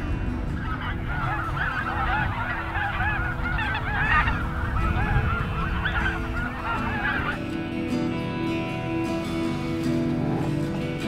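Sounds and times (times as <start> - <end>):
geese honking: 0.0 - 11.0.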